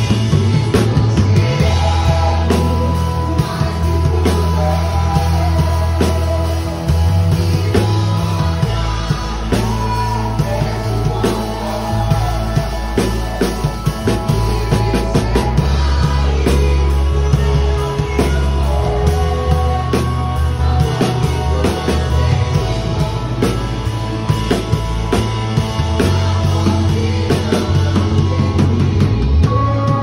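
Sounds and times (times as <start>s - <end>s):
drum and cymbal hits: 0.0s - 30.0s
person singing: 0.0s - 30.0s
rock band with bass: 0.0s - 30.0s.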